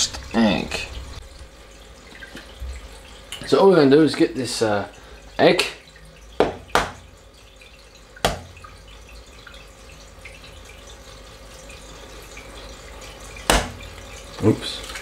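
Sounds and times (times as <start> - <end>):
sharp knock: 13.5 - 13.8.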